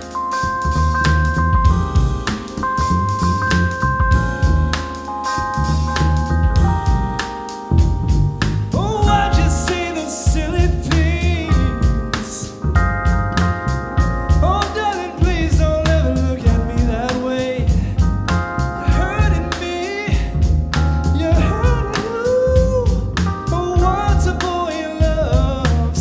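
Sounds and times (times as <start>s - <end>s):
jazz soul band playing: 0.0s - 26.0s
wordless singing: 8.7s - 12.6s, 14.4s - 17.7s.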